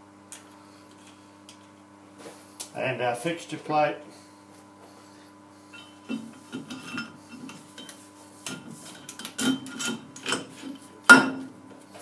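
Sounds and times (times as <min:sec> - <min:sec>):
metal scraping and clinking on metal: 0:05.8 - 0:10.8.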